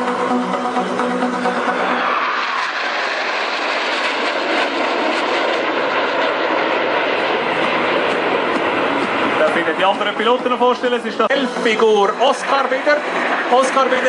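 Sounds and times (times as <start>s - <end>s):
music: 0.0s - 2.3s, 7.6s - 14.0s
jet noise rushing: 0.0s - 14.0s.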